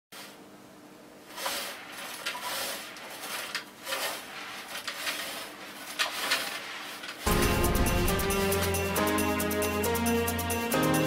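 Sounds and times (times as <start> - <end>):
floor tool scraping floor: 1.2 - 9.3.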